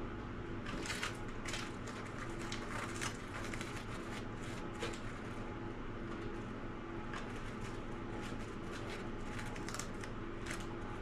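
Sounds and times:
low background hum: 0:00.0 - 0:11.0
brush scraping and rustling glue: 0:01.9 - 0:05.5, 0:07.2 - 0:09.7.

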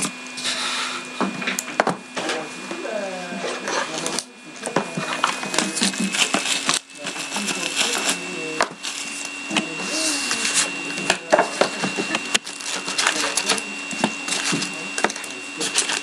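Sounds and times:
faint high whine: 0:02.2 - 0:16.0
cards and wrappers crinkling: 0:05.0 - 0:11.3, 0:12.4 - 0:16.0.

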